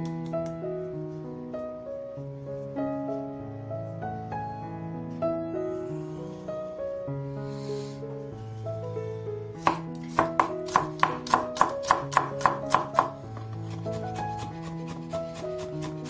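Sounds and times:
knife slicing on wooden board: 9.6s - 16.0s.

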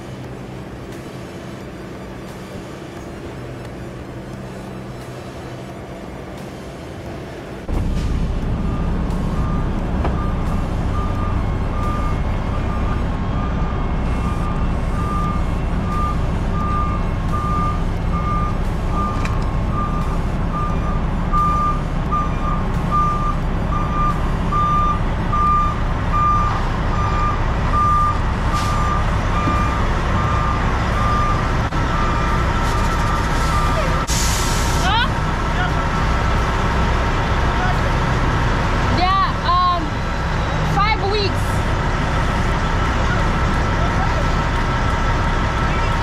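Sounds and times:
diesel truck engine rumble: 0.0s - 46.0s
reversing alarm beeping: 7.8s - 36.6s.

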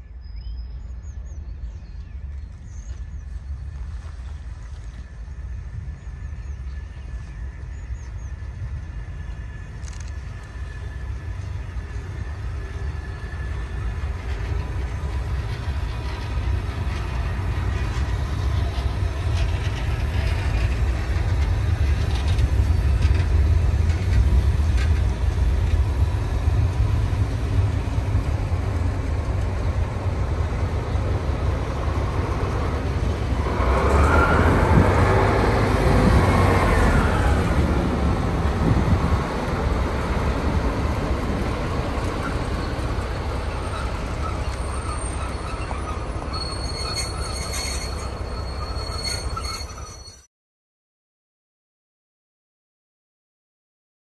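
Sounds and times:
train rumbling on rails: 0.0s - 50.3s
wheel squeal: 33.3s - 35.3s, 41.8s - 50.3s.

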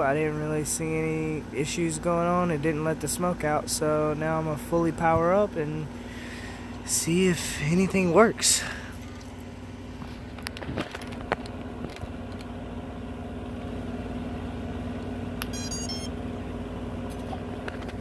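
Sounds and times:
steady low hum: 0.0s - 18.0s
high electronic chirping: 15.4s - 16.1s.

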